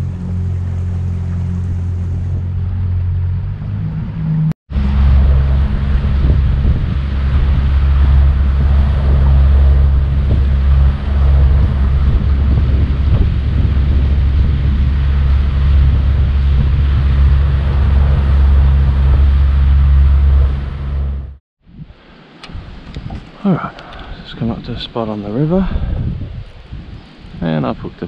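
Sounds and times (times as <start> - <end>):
outboard motor droning: 0.0 - 21.4
water rushing along hull: 0.0 - 25.6
wind buffeting microphone: 0.0 - 28.0.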